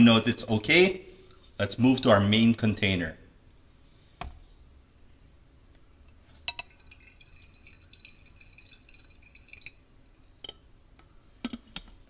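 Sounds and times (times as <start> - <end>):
liquid trickling into filter: 6.4 - 9.8
glass clinking: 6.5 - 9.8.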